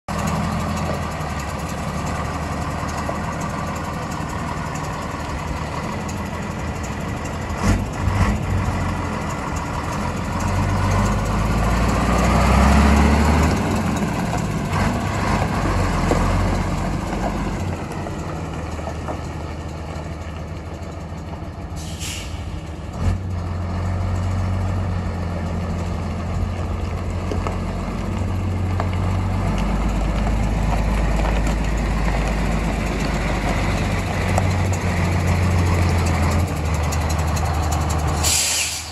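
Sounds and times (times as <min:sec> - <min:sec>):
truck diesel engine idling: 0:00.1 - 0:38.9
air release hiss: 0:21.8 - 0:22.6, 0:38.2 - 0:38.9.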